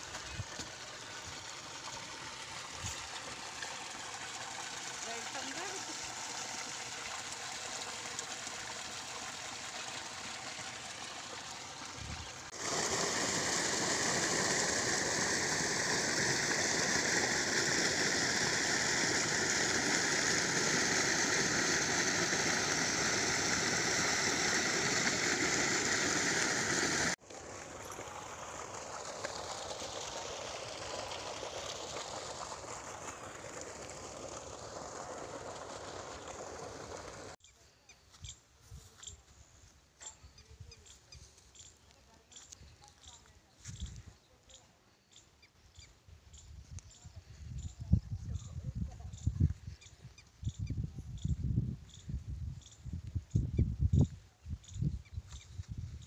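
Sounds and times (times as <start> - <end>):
water gushing from pipe: 0.0 - 37.4.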